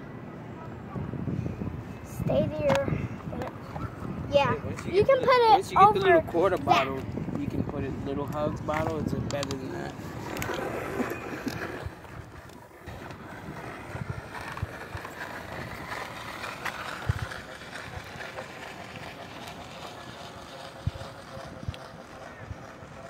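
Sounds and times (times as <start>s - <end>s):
plastic bottle rattling on spokes: 8.8s - 23.0s.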